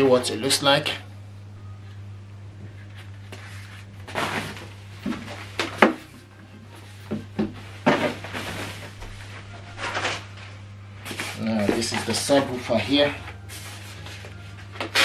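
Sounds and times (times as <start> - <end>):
steady low hum: 0.0 - 15.0
scuffs and rustles: 6.7 - 14.7.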